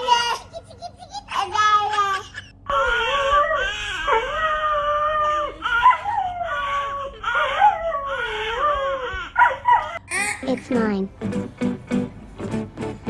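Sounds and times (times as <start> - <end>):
baby crying: 1.4 - 10.5
dog howling: 3.1 - 10.1.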